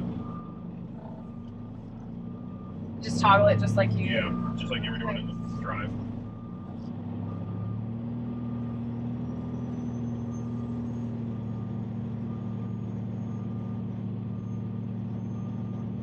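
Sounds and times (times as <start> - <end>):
diesel engine idling: 0.0 - 16.0
backup alarm beeping: 0.2 - 6.7.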